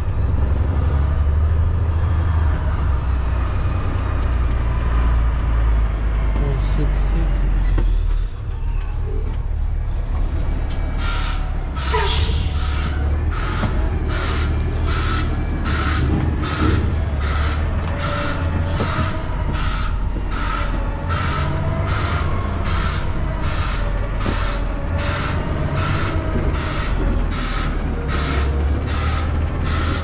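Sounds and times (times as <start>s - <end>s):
diesel engine rumble: 0.0s - 30.0s
reversing alarm beeping: 10.4s - 30.0s.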